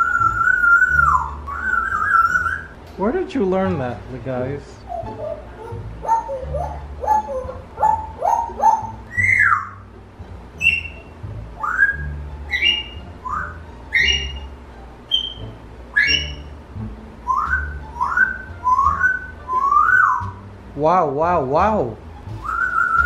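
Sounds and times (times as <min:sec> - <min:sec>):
parrot whistling: 0:00.0 - 0:02.8, 0:04.8 - 0:09.9, 0:10.6 - 0:16.6, 0:17.2 - 0:20.4, 0:22.3 - 0:23.0.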